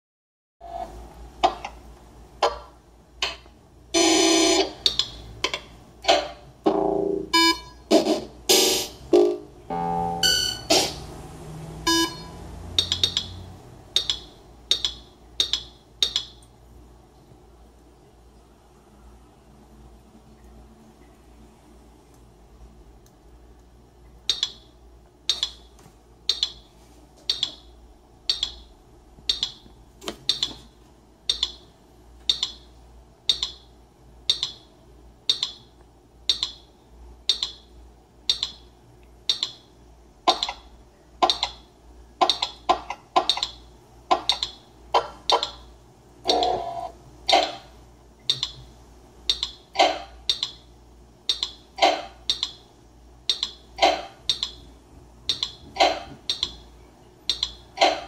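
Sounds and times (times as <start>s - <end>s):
drum machine sharp clicks: 7.9s - 11.2s, 12.7s - 16.4s, 24.3s - 24.6s, 27.3s - 30.6s, 31.3s - 31.6s, 32.2s - 32.7s, 33.3s - 33.7s, 34.3s - 34.7s, 35.3s - 35.6s, 37.3s - 37.7s, 38.3s - 38.6s, 39.3s - 39.6s, 41.2s - 41.6s, 42.2s - 45.6s, 49.3s - 50.6s, 51.3s - 52.6s, 53.3s - 54.7s, 55.3s - 56.7s, 57.3s - 58.0s.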